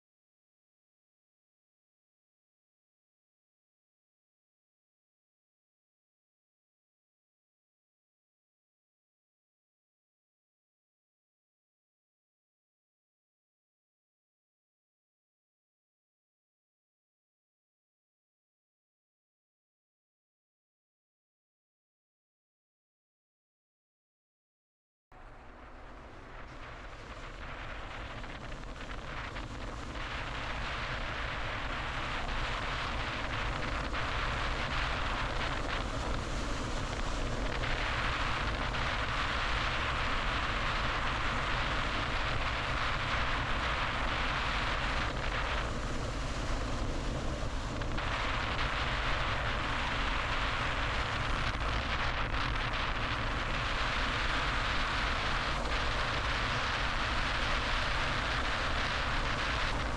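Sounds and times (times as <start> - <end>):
car road noise: 25.2 - 59.9.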